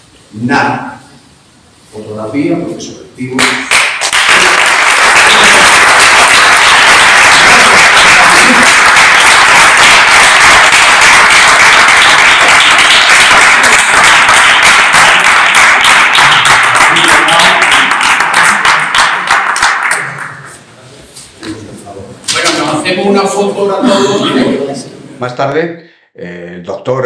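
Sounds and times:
audience applauding: 0:03.4 - 0:20.5.

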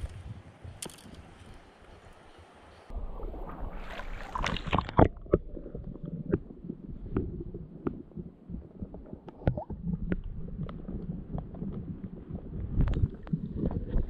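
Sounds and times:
creek water splashing: 0:01.7 - 0:10.6
underwater clicks and knocks: 0:04.4 - 0:14.0.

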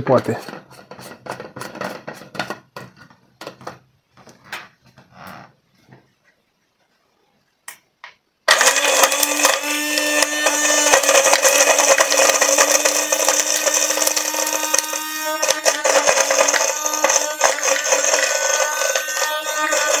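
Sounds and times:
blender motor running: 0:08.5 - 0:20.0.

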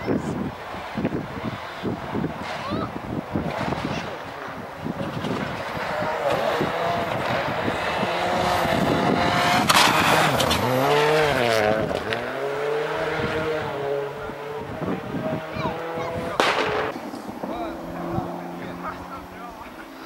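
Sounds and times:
rally car engine revving: 0:00.3 - 0:20.0
loud sharp crack: 0:16.4 - 0:17.7.

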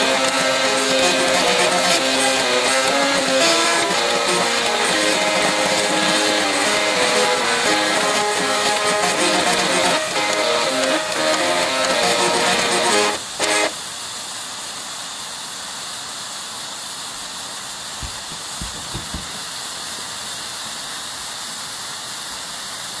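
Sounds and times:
floppy drive stepper motors buzzing tune: 0:00.0 - 0:13.7
sparklers fizzing hiss: 0:00.0 - 0:23.0.

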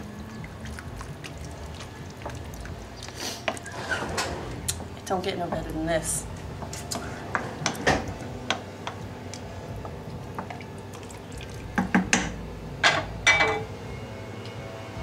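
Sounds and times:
spoon stirring thick wet food: 0:00.0 - 0:05.1, 0:06.4 - 0:11.9.

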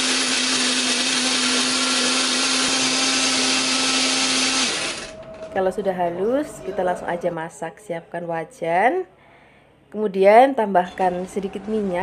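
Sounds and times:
blender blades whirring: 0:00.0 - 0:05.2
motor hum: 0:00.0 - 0:05.6.

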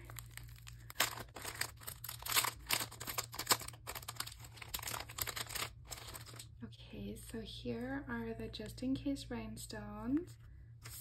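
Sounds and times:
plastic sleeve crinkling: 0:00.0 - 0:06.6.

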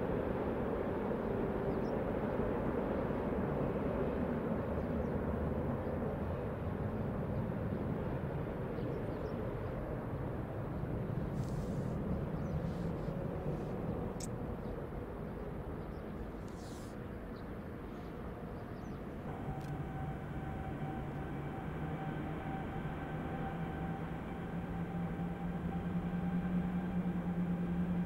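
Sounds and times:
jet engines rumbling: 0:08.6 - 0:28.0.

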